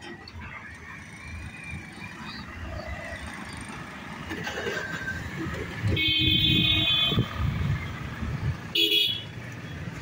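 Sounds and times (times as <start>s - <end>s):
motorcycle engines running: 0.0s - 10.0s
vehicle horn honking: 6.0s - 7.3s, 8.8s - 9.3s.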